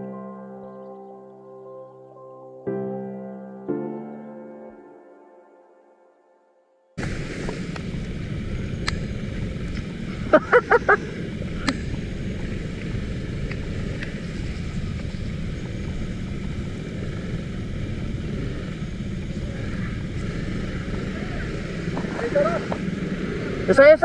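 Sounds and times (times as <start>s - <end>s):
motor scooter engine: 7.0s - 24.0s
road rumble on gravel: 7.0s - 24.0s
wind: 7.0s - 24.0s.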